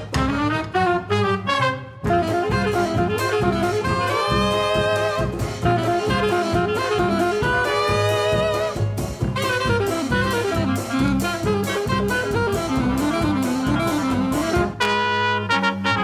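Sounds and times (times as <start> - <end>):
bowed double bass: 0.0 - 16.0
hot jazz band playing: 0.0 - 16.0
drum break: 2.1 - 14.8.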